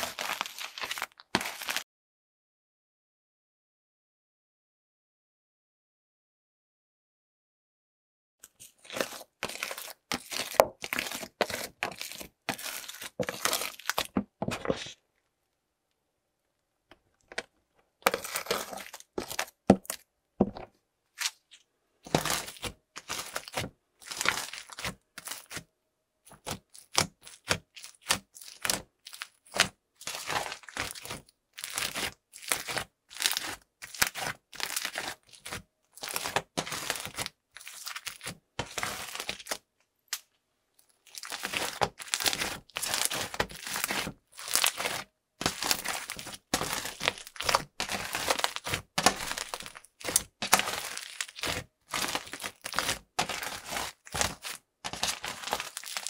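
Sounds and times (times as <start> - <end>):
slime crackling and popping: 0.0 - 1.8, 8.6 - 14.2, 18.0 - 20.0, 22.1 - 25.6, 26.3 - 40.2, 41.0 - 56.0.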